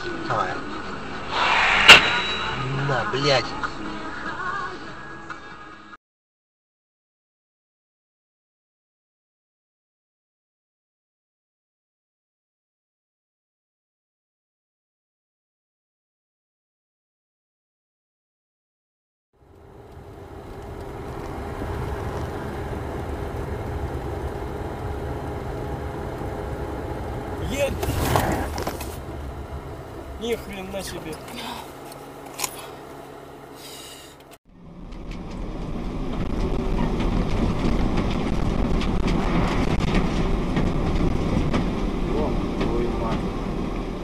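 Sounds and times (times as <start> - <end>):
car engine and road rumble: 19.4 - 44.0.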